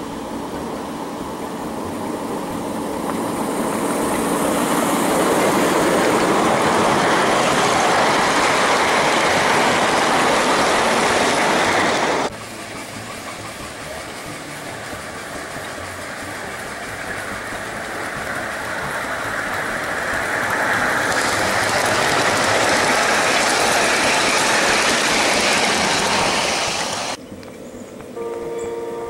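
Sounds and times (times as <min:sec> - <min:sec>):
model train wheels on rails: 0:00.0 - 0:28.4
chord-like tone signal: 0:28.2 - 0:29.0.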